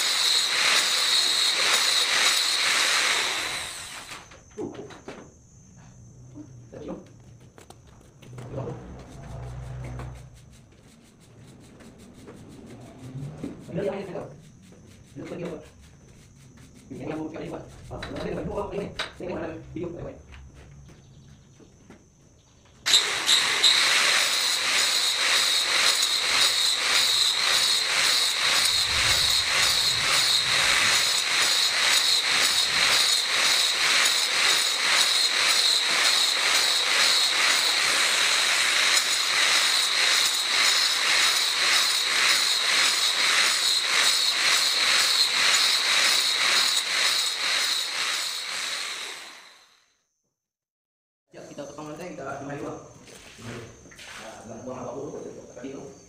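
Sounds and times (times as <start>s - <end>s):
angle grinder cutting concrete: 0.0s - 4.2s, 22.9s - 49.7s.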